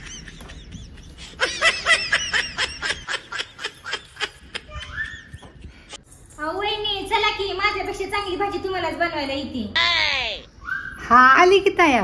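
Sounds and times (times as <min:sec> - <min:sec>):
person laughing: 0:00.0 - 0:05.7.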